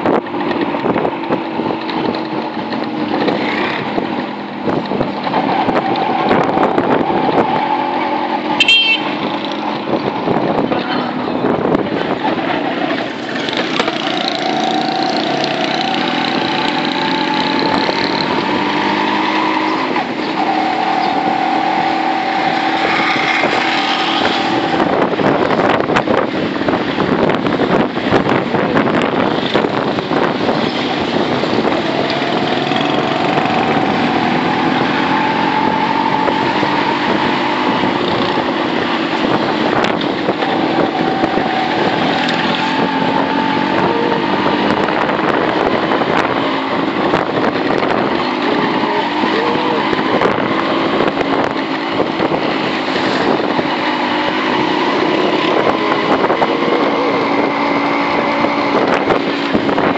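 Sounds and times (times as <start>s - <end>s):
wind buffeting microphone: 0.0s - 59.9s
small vehicle engine running: 11.9s - 26.2s, 27.8s - 59.9s.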